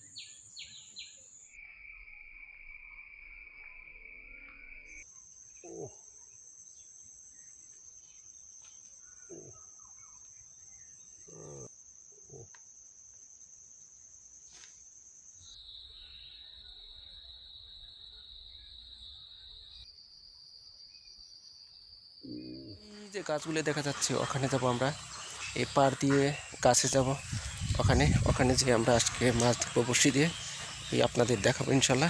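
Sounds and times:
insects shrilling: 22.2s - 32.0s.

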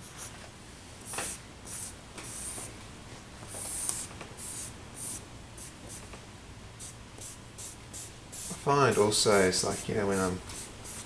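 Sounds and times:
charcoal scratching on paper: 8.4s - 11.0s.

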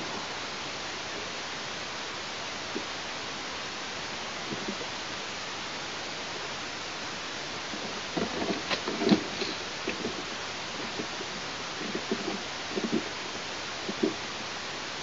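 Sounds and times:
steady hiss: 0.0s - 15.0s
branches rustling and knocking: 7.7s - 13.2s.

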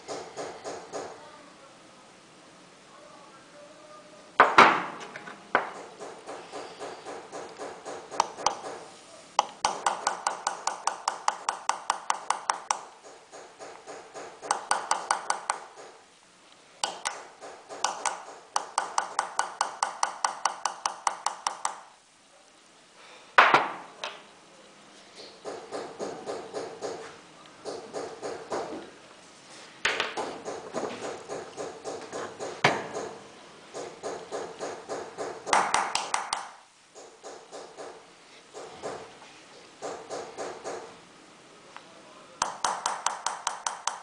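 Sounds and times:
hammer tapping engraving tool on metal: 5.6s - 8.8s, 9.4s - 16.0s, 16.8s - 21.9s, 42.4s - 44.0s.

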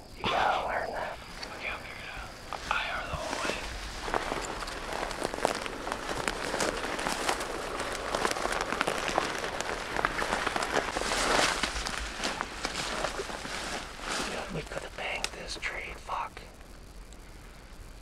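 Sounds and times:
twigs crackling and snapping: 1.3s - 15.9s
rustling through weeds: 2.6s - 14.7s.

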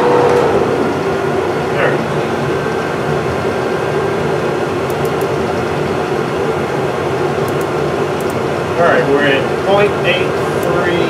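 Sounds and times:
lathe motor hum and whir: 0.0s - 11.0s.

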